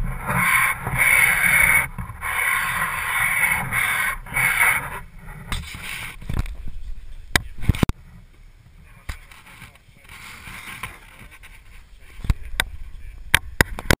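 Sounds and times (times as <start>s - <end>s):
low steady rumble: 0.0s - 13.9s.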